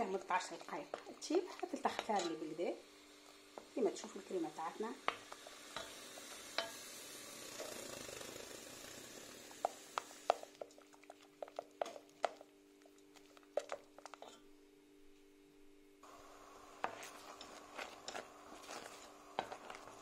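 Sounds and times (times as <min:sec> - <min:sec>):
sauce bubbling: 0:05.1 - 0:14.5, 0:16.1 - 0:20.0.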